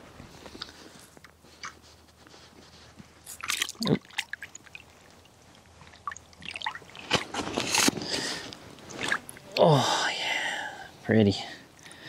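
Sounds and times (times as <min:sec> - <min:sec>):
fish thrashing water splashing: 0:03.3 - 0:07.2, 0:08.9 - 0:09.4.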